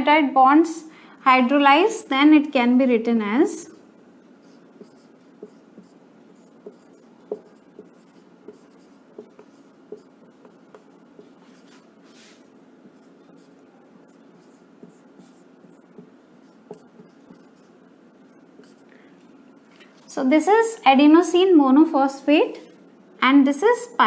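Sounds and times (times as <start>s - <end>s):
low room hum: 0.0s - 24.0s
marker pen writing on whiteboard: 4.4s - 18.9s.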